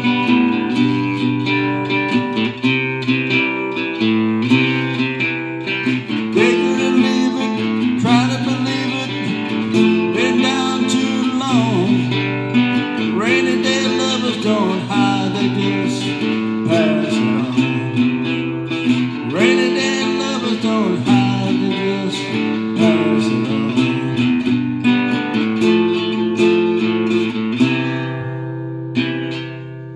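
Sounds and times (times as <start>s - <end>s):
acoustic guitar chords: 0.0s - 29.9s
man's wordless vocal: 13.2s - 18.0s.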